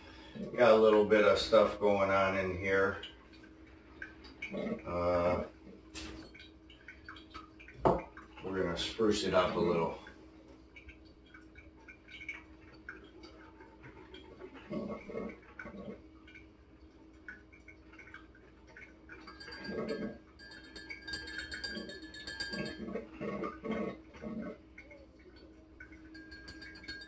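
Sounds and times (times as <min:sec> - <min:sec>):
glass clinks: 0:19.2 - 0:23.0, 0:26.1 - 0:27.0.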